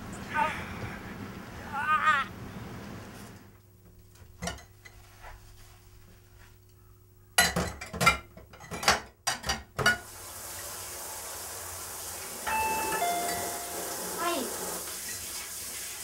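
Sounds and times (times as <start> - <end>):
dishes clinking in sink: 4.4 - 5.0, 7.4 - 10.0, 12.5 - 14.2
steady hiss: 10.0 - 16.0.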